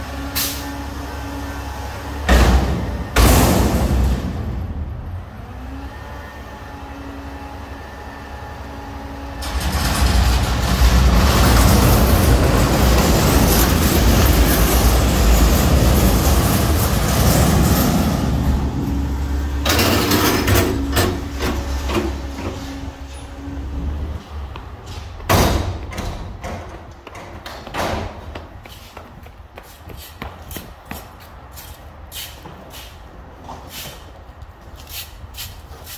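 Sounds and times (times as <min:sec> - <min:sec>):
garbage truck engine: 0:00.0 - 0:28.7.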